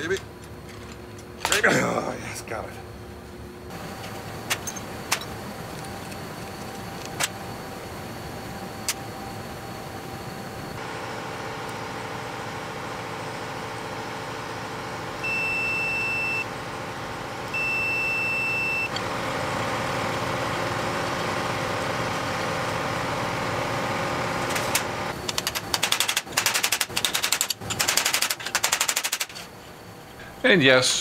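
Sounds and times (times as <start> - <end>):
multimeter beeps: 15.2 - 16.5, 17.5 - 18.9
sharp metallic clicks: 25.2 - 29.4.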